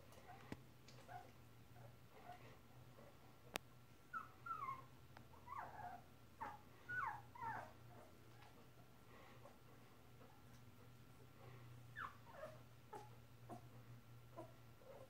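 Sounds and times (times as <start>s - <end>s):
puppies whimpering: 4.1s - 8.6s.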